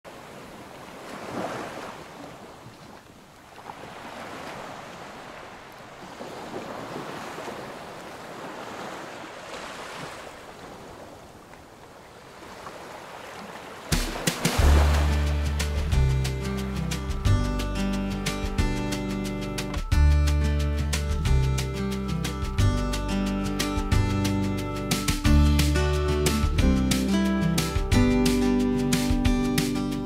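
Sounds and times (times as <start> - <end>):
waves washing onto shore: 0.1 - 16.8
music with heavy bass beat: 14.0 - 17.8, 25.0 - 29.9.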